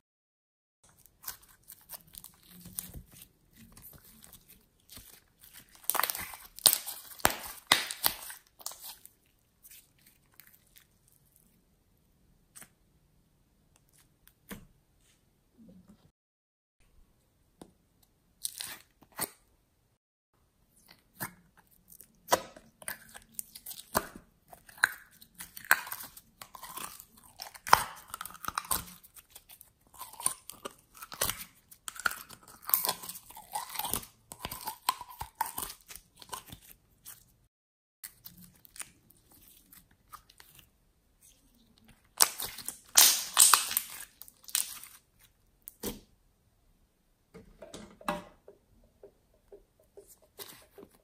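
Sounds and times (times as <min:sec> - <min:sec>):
slime squishing and crackling: 0:00.8 - 0:11.4, 0:20.8 - 0:37.4, 0:38.0 - 0:45.9.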